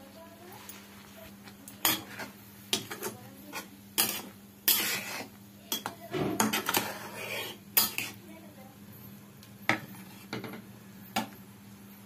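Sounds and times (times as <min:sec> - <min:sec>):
spatula scraping a metal pan: 0:01.8 - 0:08.2.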